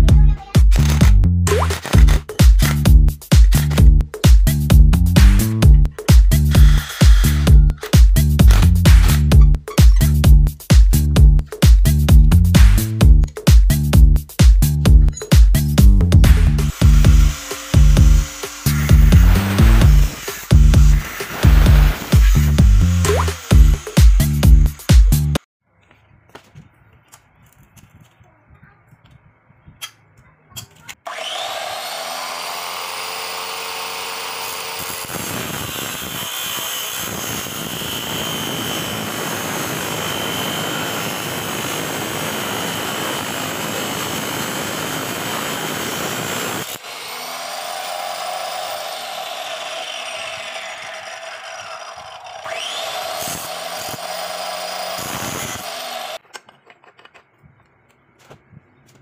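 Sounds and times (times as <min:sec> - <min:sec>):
grinding through steel bar: 0:06.4 - 0:10.3, 0:16.2 - 0:24.8, 0:32.8 - 0:56.2
angle grinder motor whining: 0:06.5 - 0:08.0, 0:16.4 - 0:24.9, 0:31.1 - 0:56.2.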